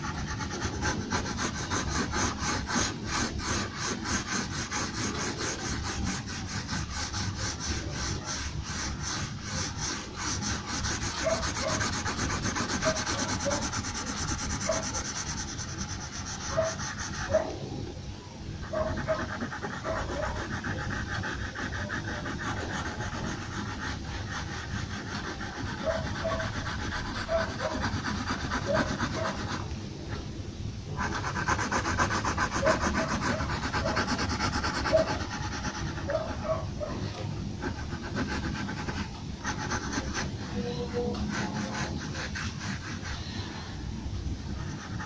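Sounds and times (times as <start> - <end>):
pencil scratching on paper: 0.0 - 17.7, 18.6 - 30.2, 30.9 - 45.0.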